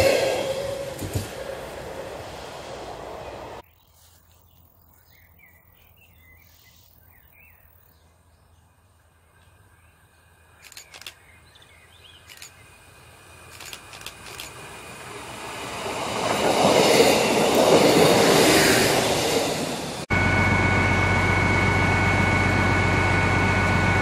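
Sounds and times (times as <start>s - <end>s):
approaching passenger train rumble: 0.0s - 3.6s, 8.7s - 24.0s
train running noise: 0.0s - 3.6s, 9.5s - 24.0s
birds chirping: 3.1s - 14.2s
sharp clicks: 10.6s - 11.2s, 13.5s - 14.6s.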